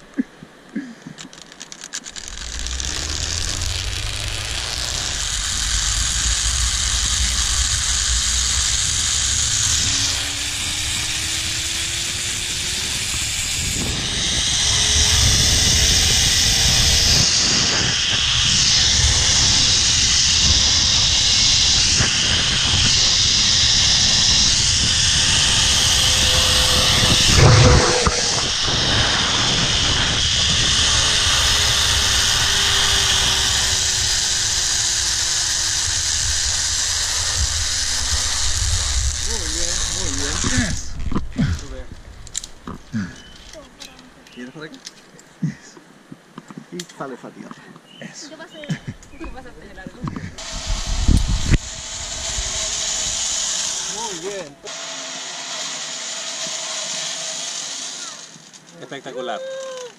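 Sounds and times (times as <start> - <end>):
zipline pulley whirring on steel cable: 1.2 - 44.0, 49.2 - 59.9
faint rising whine: 1.8 - 43.5
wind on the microphone: 2.3 - 43.4, 48.9 - 53.4.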